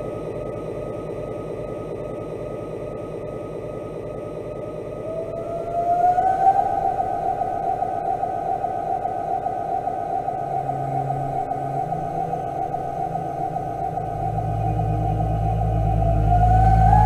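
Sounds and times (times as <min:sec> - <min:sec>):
dark ambient drone music: 0:00.0 - 0:17.0
sliding sustained tone: 0:05.3 - 0:17.0.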